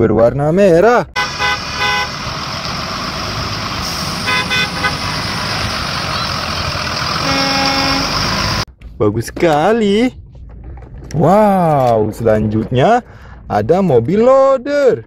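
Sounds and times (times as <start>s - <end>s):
street noise: 1.1s - 9.0s
bus horn tooting: 1.2s - 2.6s, 3.8s - 8.6s
bus engine running: 1.2s - 8.7s.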